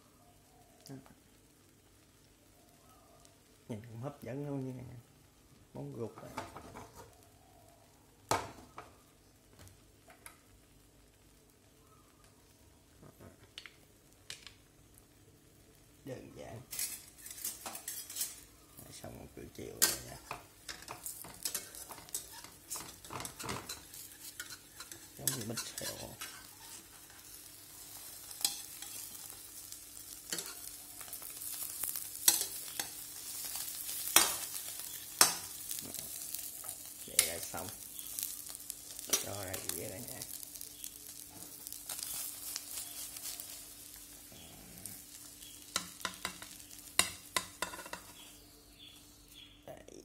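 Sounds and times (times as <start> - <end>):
omelette sizzling in a wok: 0.0 - 49.6
metal spatula scraping a pan: 16.7 - 18.5, 19.8 - 37.4, 38.0 - 48.4.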